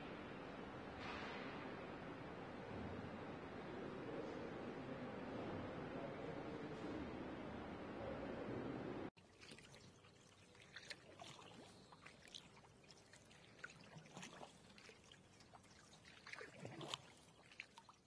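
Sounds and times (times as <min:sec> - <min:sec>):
faint trickle of water: 0:09.2 - 0:18.0.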